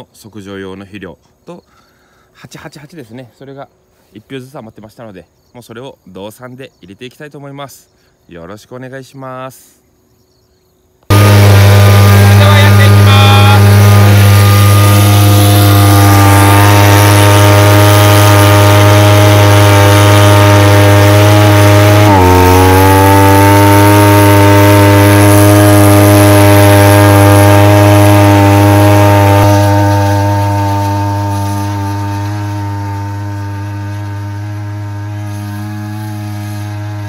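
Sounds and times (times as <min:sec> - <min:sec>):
two-stroke engine at high throttle: 0:11.1 - 0:37.0.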